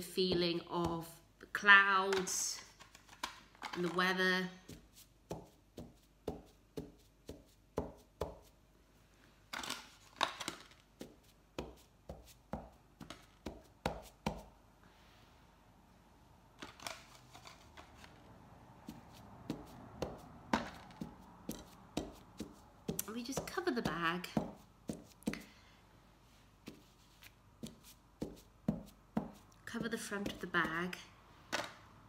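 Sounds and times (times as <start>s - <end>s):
soft taps of potato on fabric: 26.6s - 29.6s.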